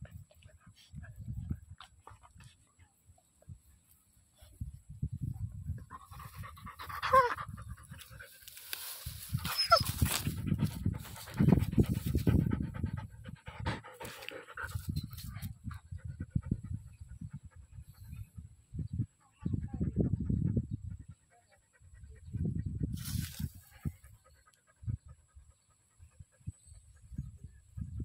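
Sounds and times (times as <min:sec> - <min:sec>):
dog panting: 0:09.7 - 0:18.4.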